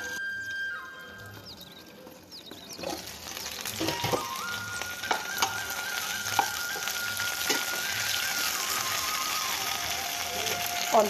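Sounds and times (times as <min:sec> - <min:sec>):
faint background music: 0:00.0 - 0:11.0
oil sizzling in a frying pan: 0:02.3 - 0:11.0
oil popping: 0:02.5 - 0:11.0.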